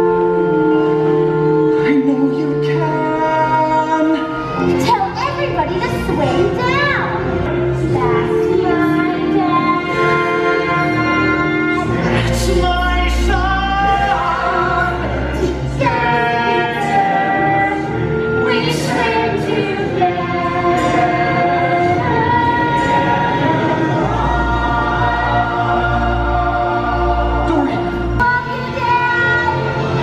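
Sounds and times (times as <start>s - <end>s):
orchestral accompaniment: 0.0s - 30.0s
singers holding long notes: 7.1s - 30.0s.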